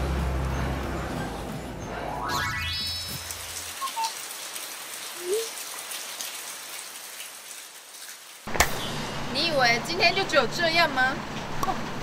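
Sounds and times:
rain falling on pavement: 0:02.8 - 0:12.0.

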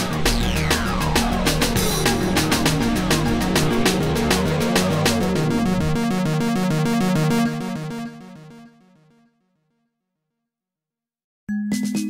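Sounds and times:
electronic music with fast drum beat: 0:00.0 - 0:08.7
repeating bass line: 0:00.0 - 0:08.8.

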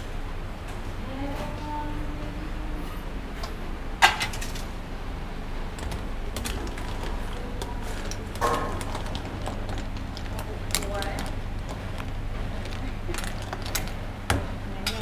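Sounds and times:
low hum: 0:00.0 - 0:15.0
utensils clinking and scraping: 0:04.0 - 0:04.7, 0:05.8 - 0:14.1.

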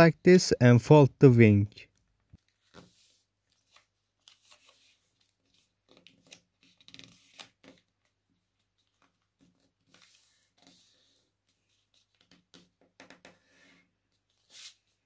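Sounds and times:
paper rustling and crinkling: 0:02.3 - 0:12.6.

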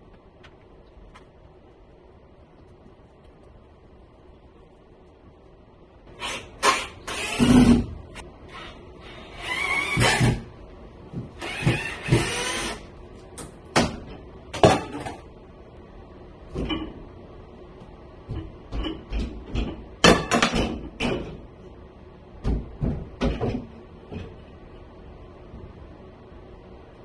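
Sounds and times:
wire shelf knocking and rattling: 0:22.4 - 0:24.3.

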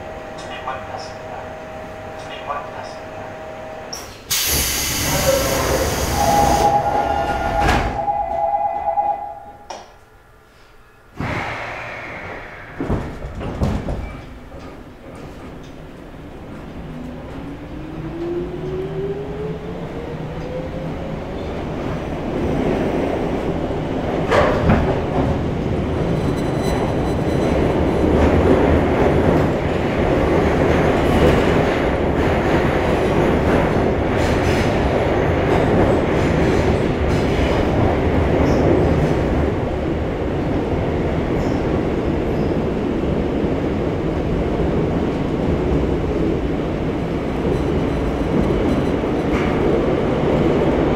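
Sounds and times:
subway motor whine: 0:00.0 - 0:11.0, 0:11.9 - 0:50.9
rail clacks: 0:11.2 - 0:18.9, 0:21.7 - 0:42.6, 0:44.2 - 0:50.9
wheels rumbling on rail: 0:11.2 - 0:50.9.

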